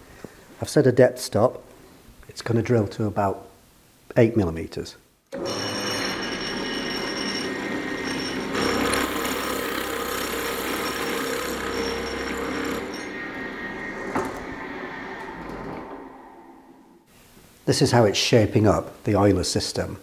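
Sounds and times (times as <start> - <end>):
drill press boring metal: 5.4 - 13.1.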